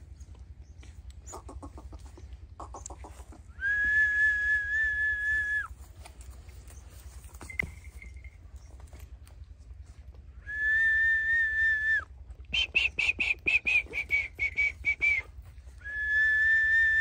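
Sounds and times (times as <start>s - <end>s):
person whistling a long note: 3.6s - 5.7s, 10.5s - 12.0s, 12.6s - 17.0s.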